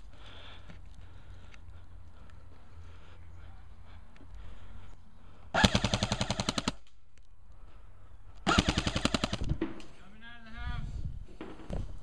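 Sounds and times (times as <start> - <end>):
airsoft rifle full-auto bursts: 5.6 - 6.8, 8.4 - 9.5.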